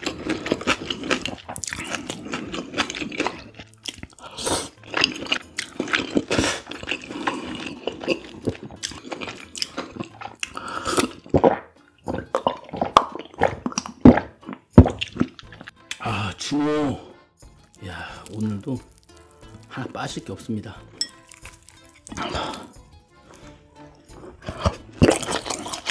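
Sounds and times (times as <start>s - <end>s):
slurping and chewing noodles: 0.0s - 16.2s, 17.6s - 19.9s, 21.0s - 25.9s
drinking broth with swallows: 0.7s - 16.1s, 21.0s - 25.9s
mouth clicks and smacks: 8.0s - 16.0s.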